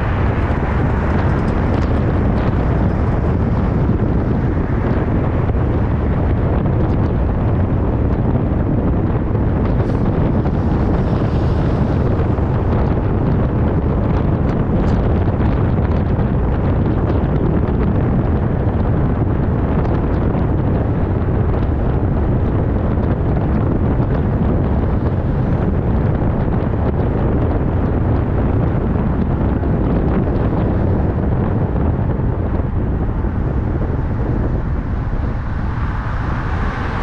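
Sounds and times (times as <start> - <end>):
car road noise rumble: 0.0 - 37.0
wind buffeting microphone: 0.0 - 37.0.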